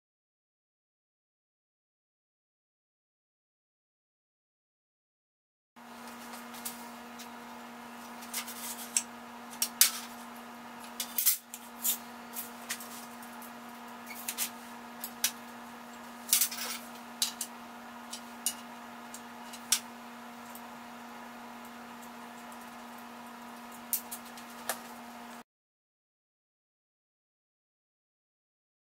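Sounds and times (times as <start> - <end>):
metal tools clinking on steel table: 16.3 - 17.5.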